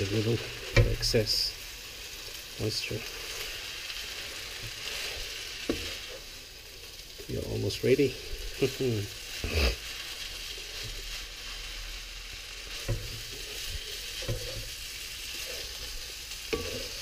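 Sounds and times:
noodles and prawns sizzling in a wok: 0:00.0 - 0:17.0
wooden spatula scraping a pan: 0:00.0 - 0:17.0.

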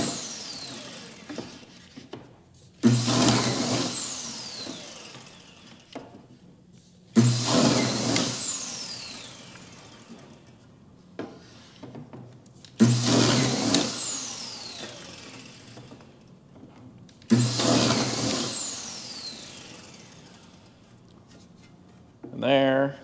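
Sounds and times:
drill motor whine: 0:00.0 - 0:01.8, 0:02.8 - 0:06.0, 0:07.2 - 0:10.5, 0:12.8 - 0:16.2, 0:17.3 - 0:20.8.

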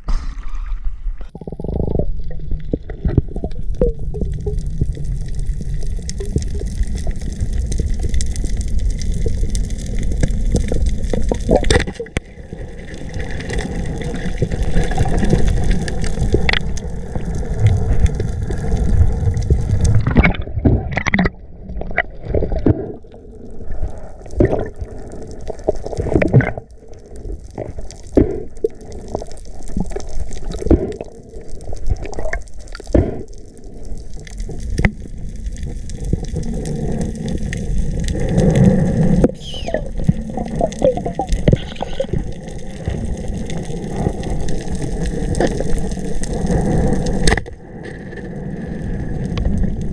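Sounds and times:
sharp knocks and splashes: 0:00.0 - 0:01.2
water sloshing and gurgling: 0:00.0 - 0:49.9.

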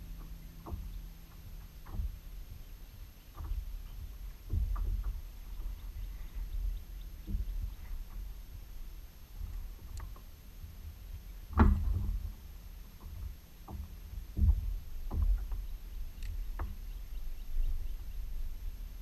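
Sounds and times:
steady low rumble: 0:00.0 - 0:19.0
knocks on plastic kayak hull: 0:11.6 - 0:12.4, 0:13.1 - 0:15.7.

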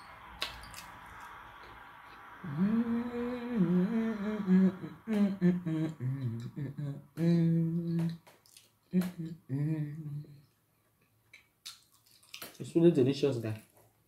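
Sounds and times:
faint hiss: 0:00.0 - 0:10.5
woman humming a tune: 0:02.4 - 0:08.2, 0:08.9 - 0:10.4.

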